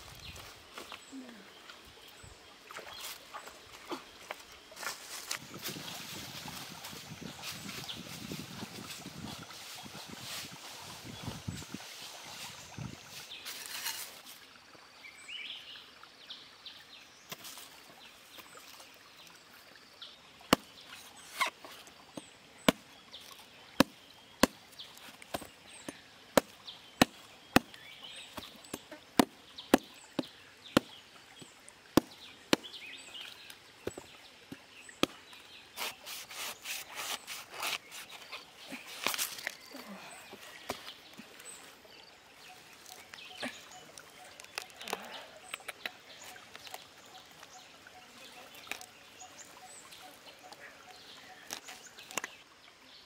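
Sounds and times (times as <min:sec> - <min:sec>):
footsteps in dry leaves: 0:13.0 - 0:14.3, 0:35.8 - 0:39.7.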